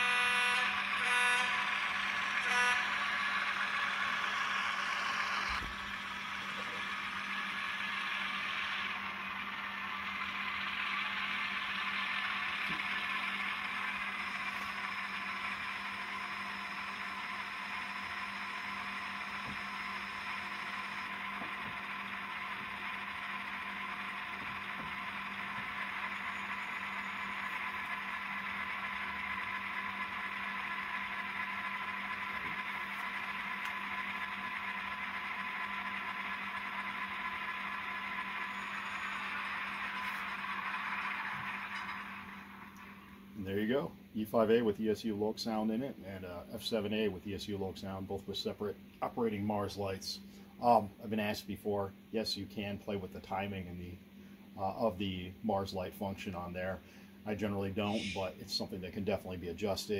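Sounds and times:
synthesized diesel engine idling: 0.0s - 43.6s.

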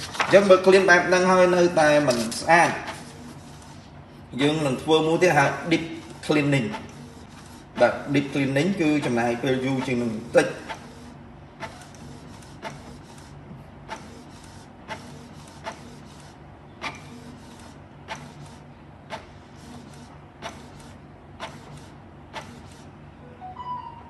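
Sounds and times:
printer motor hum: 0.0s - 23.2s
sharp mechanical clicks: 13.9s - 22.9s.

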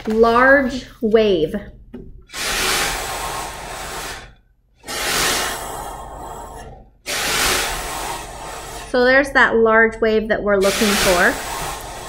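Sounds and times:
metal spring scraping tabletop: 2.3s - 9.1s, 10.6s - 12.0s.

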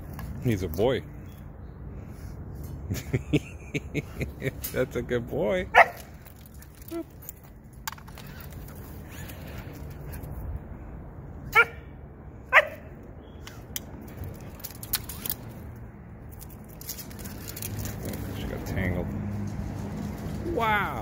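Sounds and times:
dog barking: 5.7s - 6.0s, 11.5s - 11.8s, 12.5s - 12.9s.

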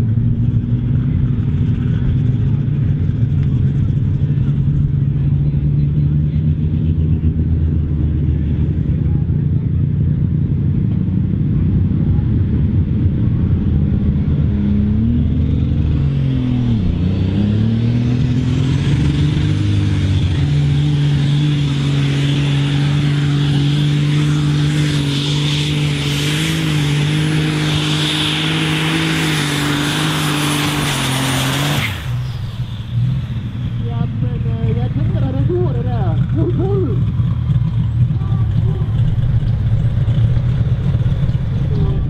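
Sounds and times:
tractor diesel engine under load: 0.0s - 42.0s
high turbo whistle: 26.8s - 33.9s.

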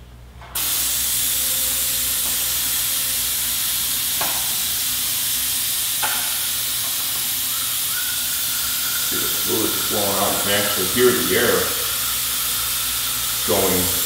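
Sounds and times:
vacuum brake bleeder hissing: 0.6s - 14.0s.

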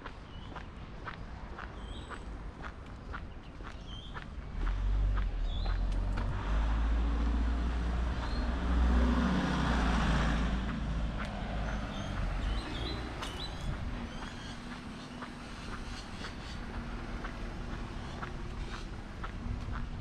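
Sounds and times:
bird chirps: 1.8s - 2.2s, 3.3s - 4.2s, 11.6s - 16.8s
vehicle driving past: 4.6s - 19.8s.

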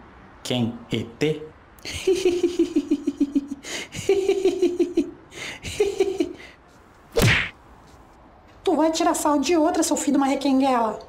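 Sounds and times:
man laughing: 1.8s - 6.5s
loud swish-like burst: 7.2s - 7.6s.

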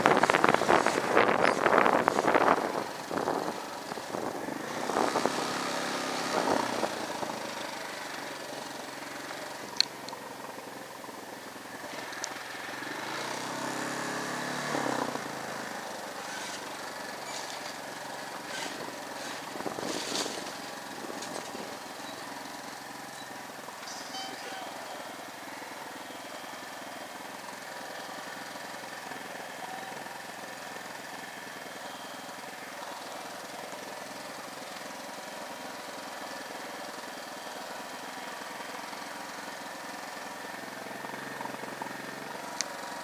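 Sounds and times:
motorcycle engine revving: 0.0s - 9.7s, 11.6s - 25.4s.

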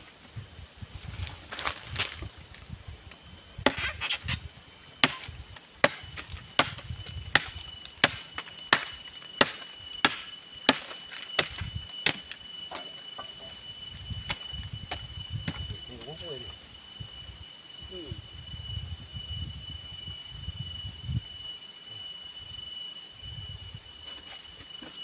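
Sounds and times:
machete chopping into vine: 3.6s - 4.4s, 5.0s - 12.4s.

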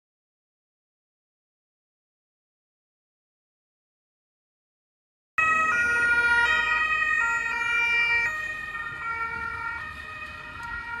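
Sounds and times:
police car siren: 5.4s - 11.0s.

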